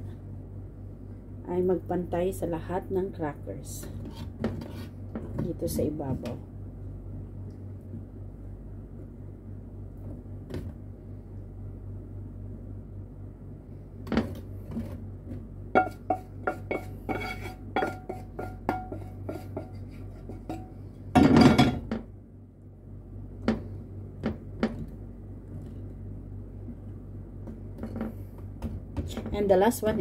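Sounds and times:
wooden spatula scraping frying pan: 0:15.8 - 0:20.7.

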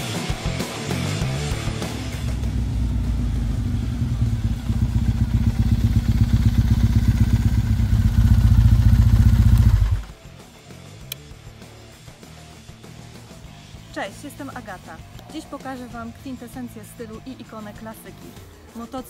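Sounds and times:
motorcycle engine approaching: 0:00.0 - 0:10.3.

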